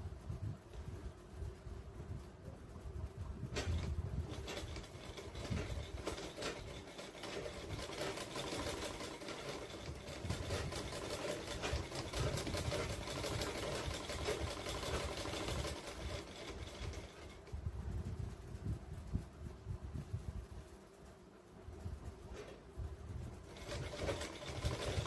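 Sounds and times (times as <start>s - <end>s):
sewing machine stitching: 3.5s - 17.5s, 23.4s - 25.0s.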